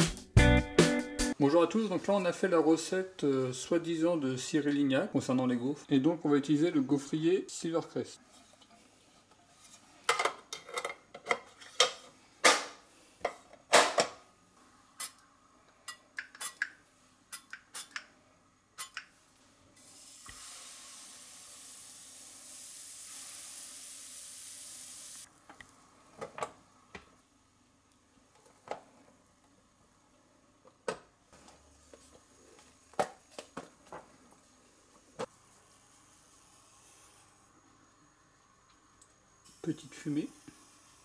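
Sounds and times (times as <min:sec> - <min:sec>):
batter sizzling on hot plates: 0:19.1 - 0:25.4, 0:39.4 - 0:41.0.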